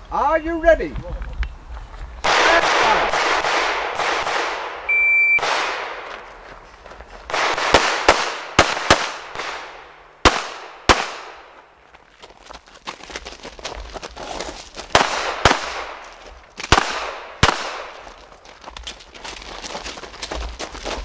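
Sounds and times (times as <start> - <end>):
rapid pistol gunfire: 2.2 - 4.8, 5.4 - 6.0, 7.3 - 11.4, 16.7 - 18.0
electronic shot timer beep: 4.9 - 5.4.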